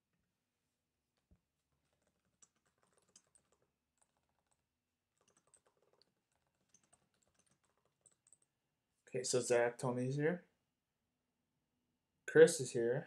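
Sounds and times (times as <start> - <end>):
laptop keyboard typing: 1.7 - 8.5.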